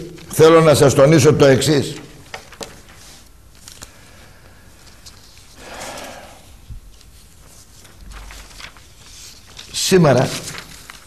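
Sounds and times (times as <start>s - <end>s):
soft rustle: 2.4s - 11.0s.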